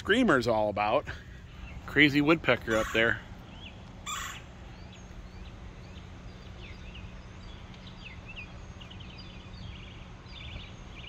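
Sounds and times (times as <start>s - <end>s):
steady low hum: 0.0s - 11.0s
bird chirps: 1.2s - 11.0s
bird rattling trill: 4.0s - 4.5s.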